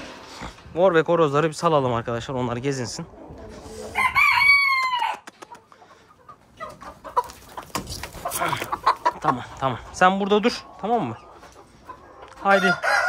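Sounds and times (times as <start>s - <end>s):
chickens clucking: 0.0s - 13.0s
chickens scuffling: 0.0s - 13.0s
rooster crowing: 4.0s - 5.2s, 12.5s - 13.0s.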